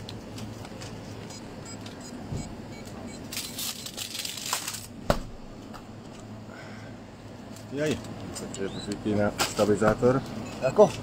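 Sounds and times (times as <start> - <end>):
grocery packaging rustling: 3.3 - 5.0.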